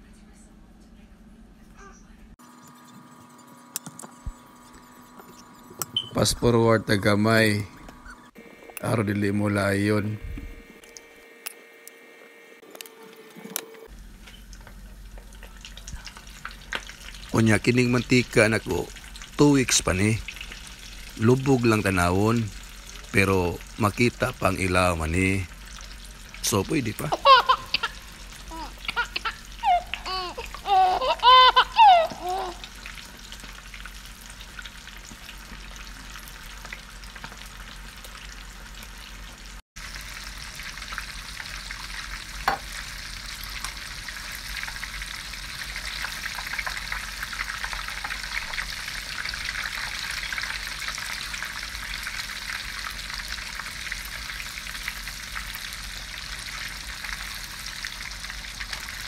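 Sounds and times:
person speaking: 8.8s - 10.3s, 17.3s - 20.2s, 21.2s - 25.5s, 26.4s - 32.6s
food sizzling in hot oil: 13.8s - 59.0s.

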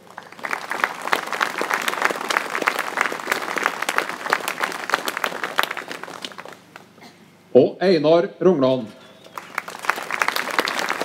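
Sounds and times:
crowd applauding: 0.0s - 7.0s, 9.2s - 11.0s.

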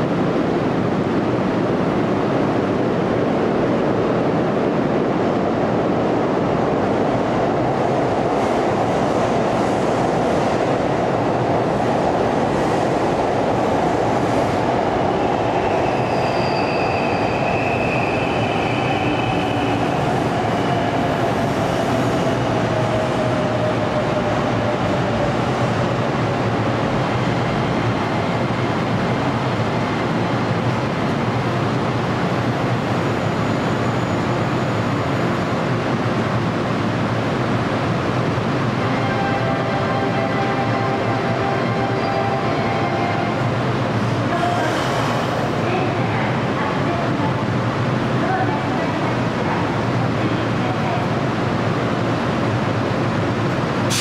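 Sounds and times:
electric train rumble and hum: 0.0s - 54.0s
high squeals: 15.6s - 19.9s.

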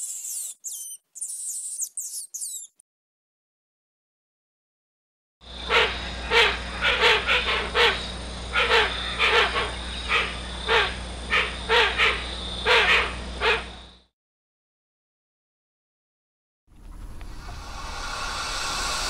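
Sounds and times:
bird giving harsh hissing calls: 0.0s - 2.8s, 5.5s - 13.6s, 17.4s - 19.0s
steady low hum: 5.4s - 14.0s, 16.8s - 19.0s.

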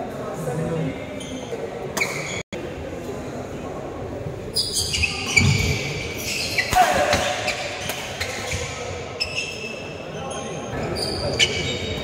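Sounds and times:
sneakers squeaking on wooden floor: 1.2s - 2.4s, 4.5s - 12.0s.

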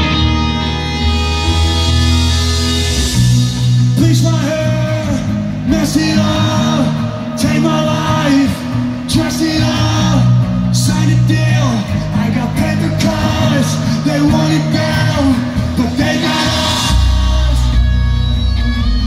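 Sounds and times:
rock band playing: 0.0s - 19.0s
person singing: 3.9s - 19.0s.

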